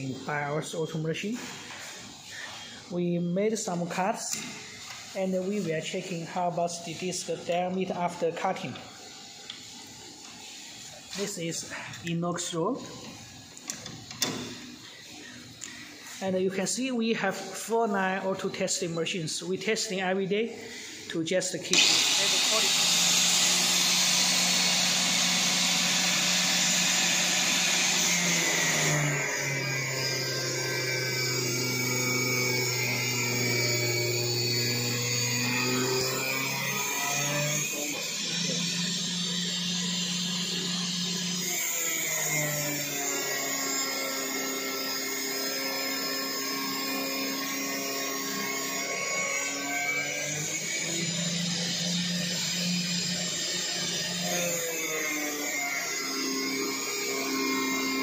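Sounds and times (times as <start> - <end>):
angle grinder cutting steel rod: 21.7 - 58.0.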